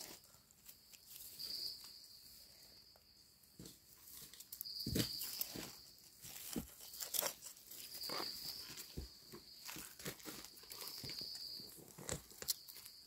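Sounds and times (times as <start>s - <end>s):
knife scraping soil: 5.0s - 13.0s.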